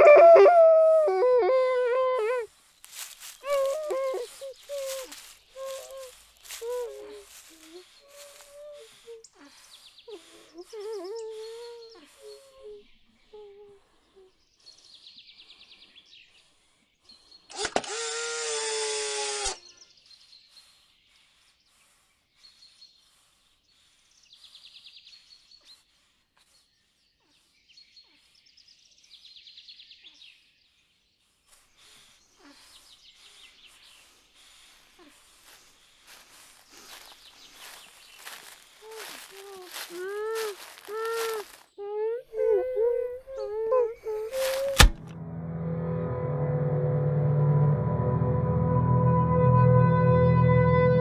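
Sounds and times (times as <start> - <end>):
birds chirping and trilling: 35.4 - 41.6
loud wavering pitched sound: 44.9 - 51.0.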